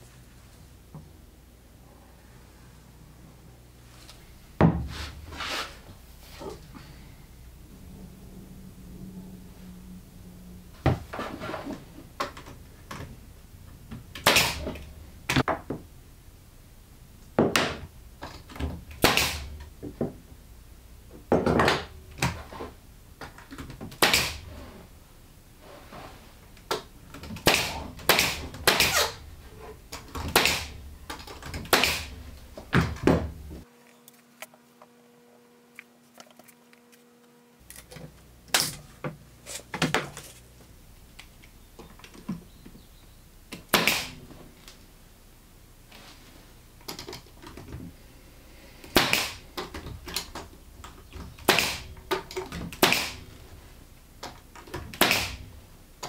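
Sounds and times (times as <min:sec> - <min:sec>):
pneumatic nailer shots: 0:14.1 - 0:14.8, 0:18.9 - 0:19.6, 0:23.9 - 0:24.5, 0:27.3 - 0:29.2, 0:30.1 - 0:33.2, 0:43.7 - 0:44.2, 0:48.8 - 0:49.5, 0:51.4 - 0:53.3, 0:54.8 - 0:55.5.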